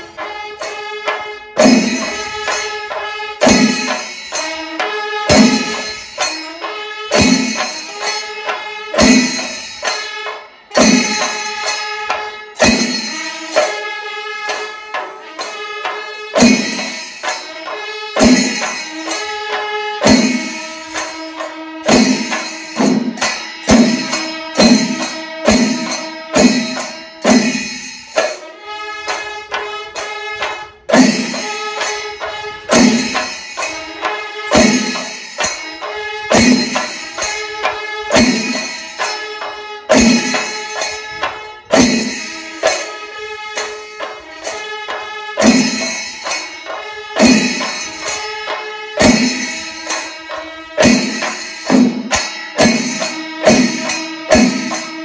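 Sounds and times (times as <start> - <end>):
drum ensemble playing: 0.0 - 55.0
hand cymbals clashing: 0.0 - 55.0.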